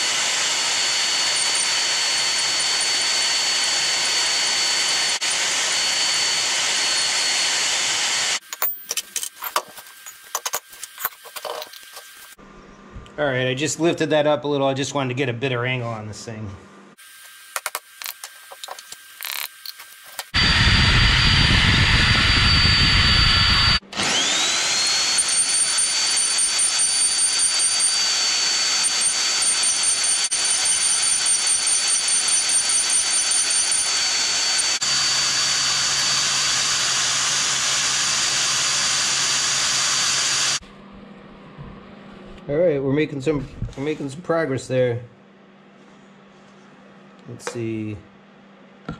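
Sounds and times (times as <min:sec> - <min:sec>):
electric drill whining: 0:00.0 - 0:12.4, 0:17.0 - 0:40.6.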